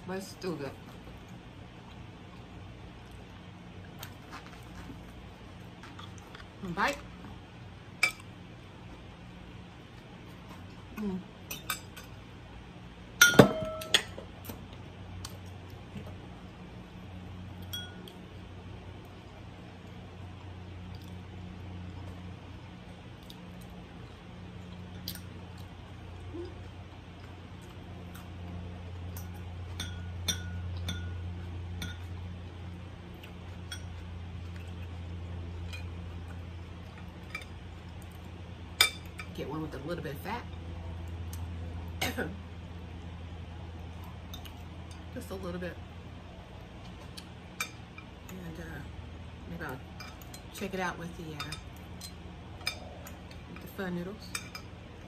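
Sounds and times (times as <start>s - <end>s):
steady low hum: 0.0s - 55.0s
fork clinking against ceramic bowl: 29.2s - 31.2s.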